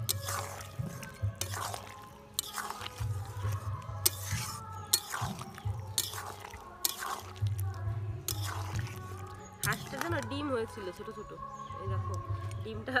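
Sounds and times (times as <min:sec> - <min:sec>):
metal spatula scraping metal pot: 0:00.0 - 0:10.3
background music: 0:00.0 - 0:13.0.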